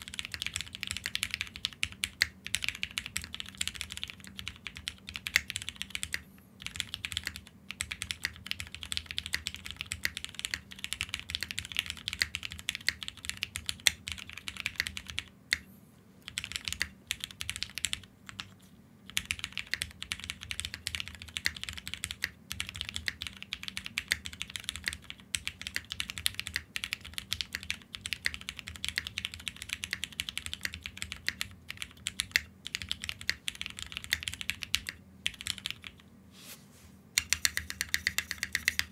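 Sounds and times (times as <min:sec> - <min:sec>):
fast mechanical keyboard typing: 0:00.0 - 0:15.6, 0:16.2 - 0:36.0, 0:37.2 - 0:38.9.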